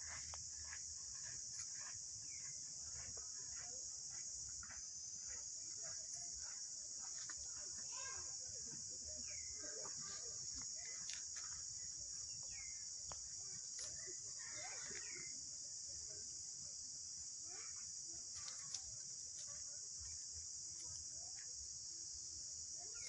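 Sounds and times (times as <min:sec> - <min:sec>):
high-pitched insect chorus: 0:00.0 - 0:23.0
faint short chirping calls: 0:09.2 - 0:15.4.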